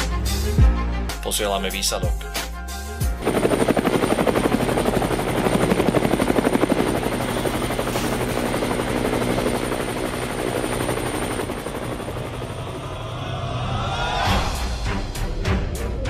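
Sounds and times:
helicopter rotor chopping: 3.2 - 13.6.

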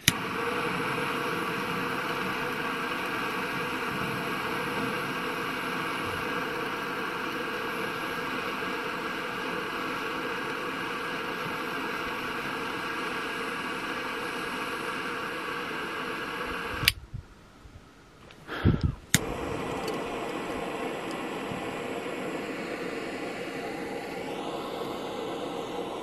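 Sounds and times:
lighter clicks: 0.0 - 0.4, 16.6 - 17.0, 19.1 - 21.3
jet torch flame hissing: 0.0 - 17.0, 18.5 - 26.0.

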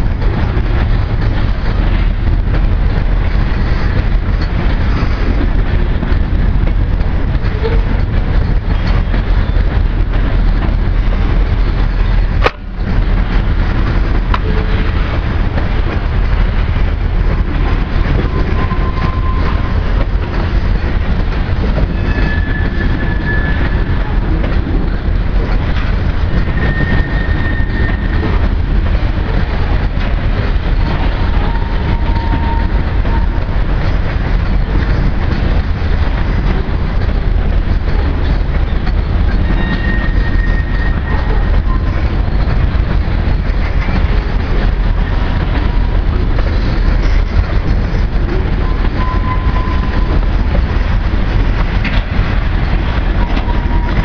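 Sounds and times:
train clatter: 0.0 - 54.0
train wheels rumbling on rail: 0.0 - 54.0
high wheel squeals: 18.2 - 19.7, 21.8 - 24.0, 26.4 - 28.3, 39.4 - 42.0.

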